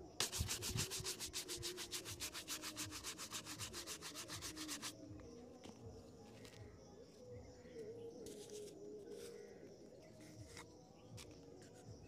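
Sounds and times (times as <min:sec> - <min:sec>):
brush scrubbing leather shoe: 0:00.2 - 0:04.9.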